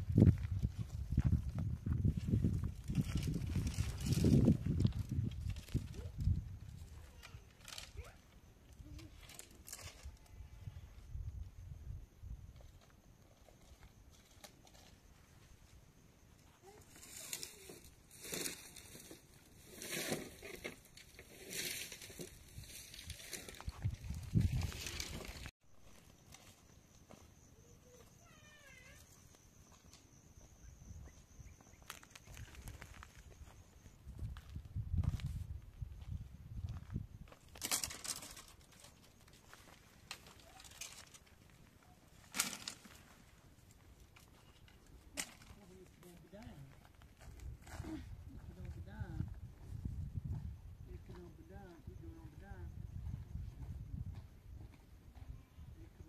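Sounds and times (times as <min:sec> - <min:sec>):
dry branches rustling and snapping: 0:37.5 - 0:41.5, 0:42.2 - 0:43.1.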